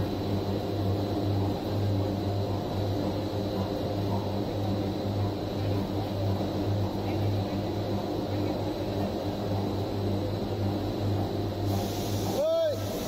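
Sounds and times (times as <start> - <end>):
machine hum and drone: 0.0 - 13.0.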